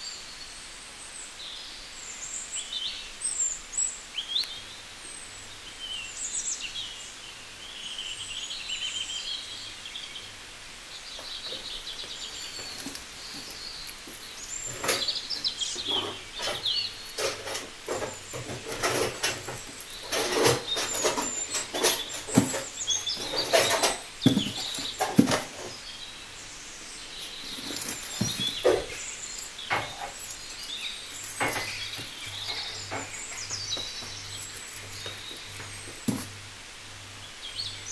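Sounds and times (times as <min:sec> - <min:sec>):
small birds chirping: 0:01.4 - 0:36.5
crinkles of handled vegetables: 0:11.2 - 0:25.9, 0:26.8 - 0:36.5.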